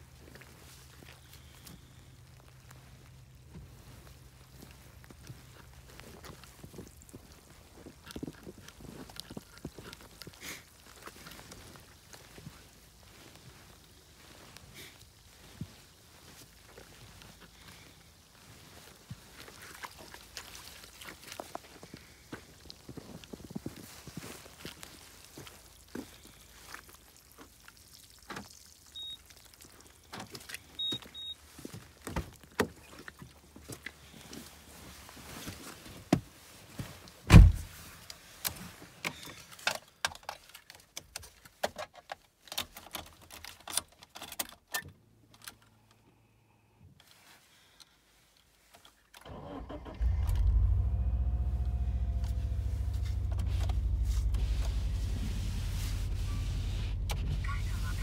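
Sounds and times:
loud thump: 37.3s - 37.7s
car engine starting and idling: 49.2s - 58.0s.

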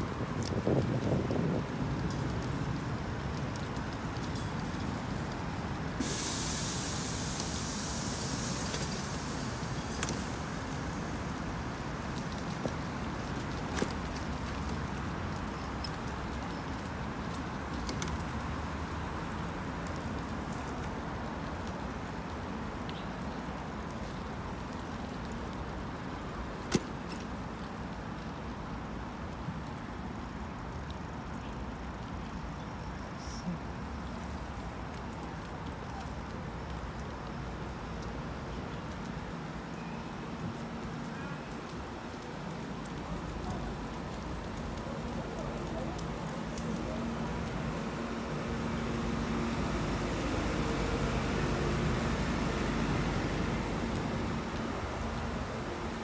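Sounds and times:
wind rumble: 0.0s - 26.6s
street traffic: 0.0s - 56.0s.

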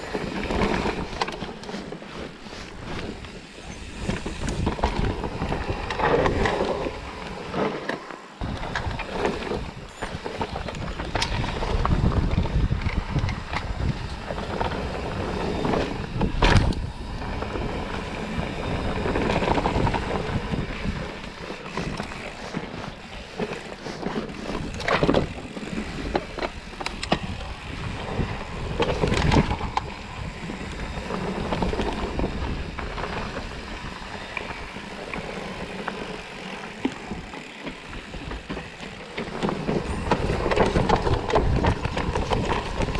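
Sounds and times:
bike frame and chain rattle: 0.0s - 42.9s
bike tyres on dirt trail: 0.0s - 42.9s
wind on microphone: 8.4s - 23.4s, 24.2s - 35.7s, 37.1s - 42.9s.

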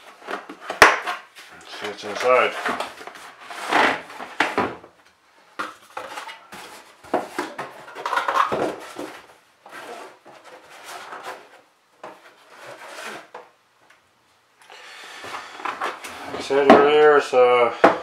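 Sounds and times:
cardboard rustling against plastic case: 5.6s - 13.5s.

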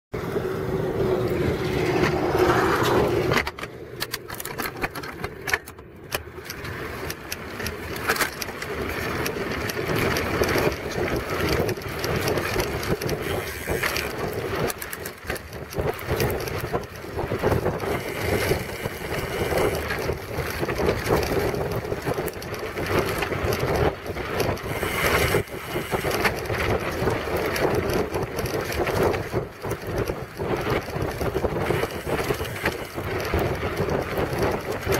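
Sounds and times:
bike clicks and knocks: 1.2s - 34.9s
wind buffeting microphone: 7.1s - 34.9s.

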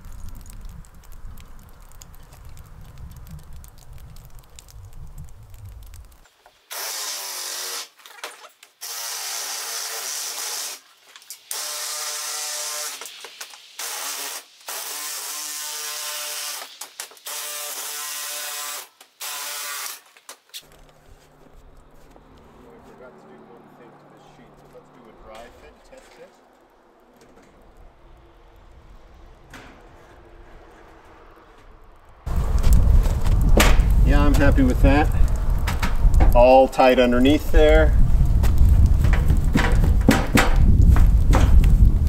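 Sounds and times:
shear cutting steel: 6.6s - 22.0s
low rumble: 26.7s - 36.4s, 37.9s - 42.0s.

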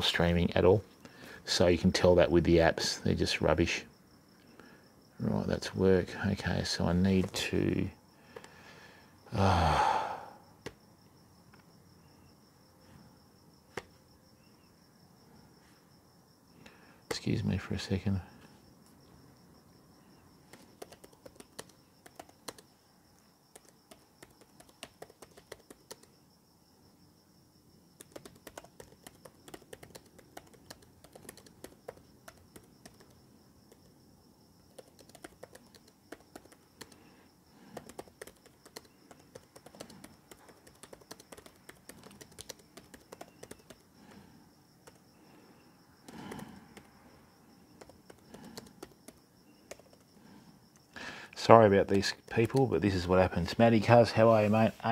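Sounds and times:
laptop keyboard typing: 20.4s - 22.8s, 23.5s - 26.2s, 28.0s - 34.0s, 34.6s - 45.4s, 46.0s - 51.0s, 51.8s - 52.7s.

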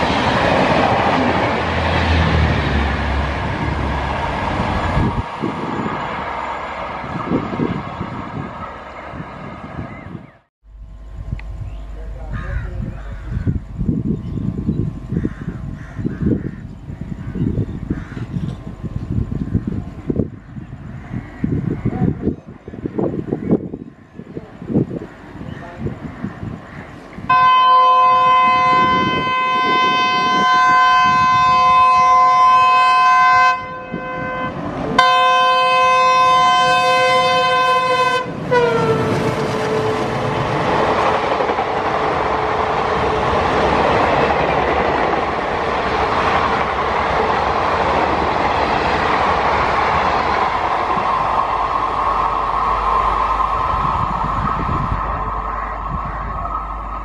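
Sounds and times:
train coaches rumbling past: 0.0s - 57.0s
locomotive horn blasts: 27.3s - 40.5s.

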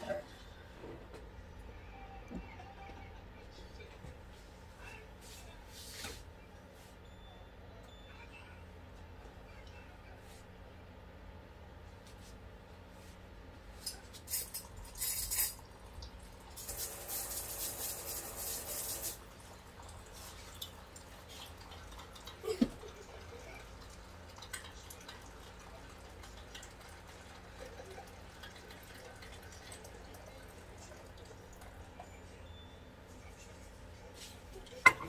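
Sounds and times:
liquid pouring into cup: 14.2s - 32.1s.

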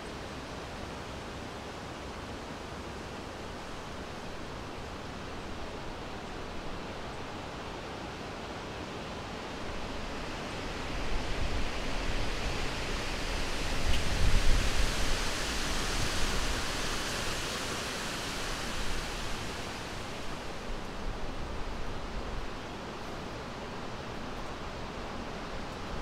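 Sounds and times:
wind blowing: 9.7s - 22.2s.

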